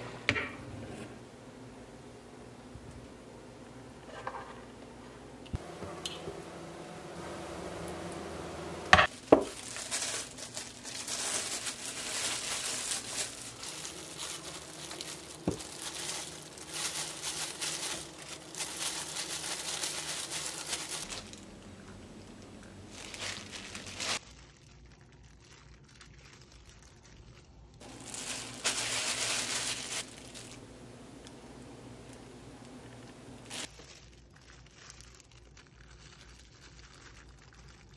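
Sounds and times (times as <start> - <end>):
plastic glove crinkling: 9.0 - 37.9.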